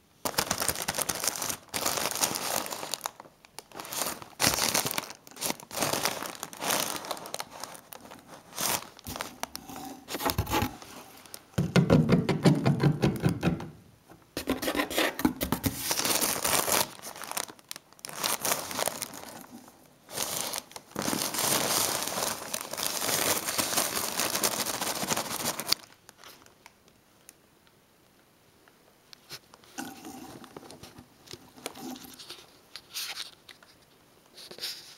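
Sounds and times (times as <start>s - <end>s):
plastic packing bags crinkling: 0.2s - 11.6s, 15.5s - 26.7s.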